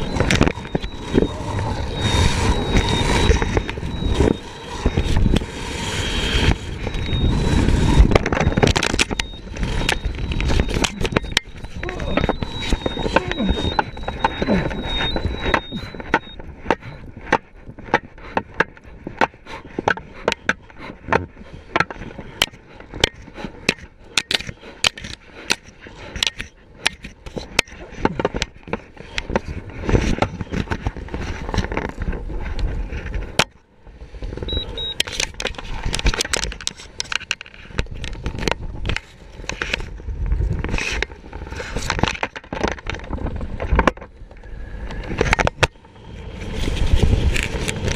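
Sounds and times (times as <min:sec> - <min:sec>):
wind buffeting microphone: 0:00.0 - 0:18.2, 0:37.7 - 0:47.9.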